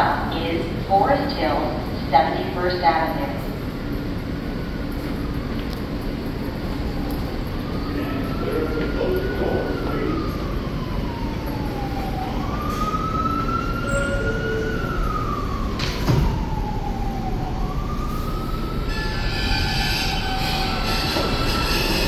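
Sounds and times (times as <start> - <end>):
subway train rumble: 0.0 - 22.0
siren wailing: 6.5 - 22.0.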